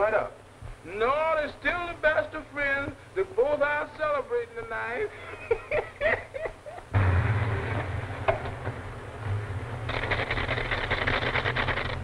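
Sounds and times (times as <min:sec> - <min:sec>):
car engine running: 0:07.0 - 0:12.0
fast rattling buzz: 0:09.3 - 0:12.0.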